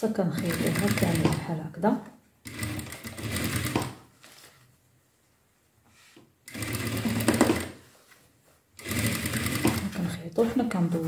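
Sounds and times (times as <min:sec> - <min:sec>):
sewing machine stitching: 0:00.3 - 0:01.6, 0:02.4 - 0:04.1, 0:06.4 - 0:07.8, 0:08.8 - 0:10.7.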